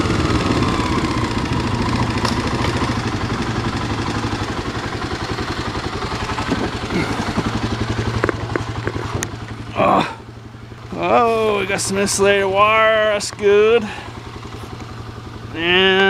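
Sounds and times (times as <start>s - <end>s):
dirt bike engine running: 0.0s - 16.0s.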